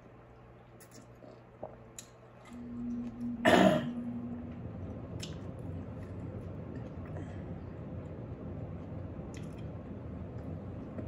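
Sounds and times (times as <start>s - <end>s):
quiet chewing: 0.3s - 3.3s, 4.8s - 7.5s, 8.8s - 11.0s
woman clearing her throat: 3.4s - 4.0s.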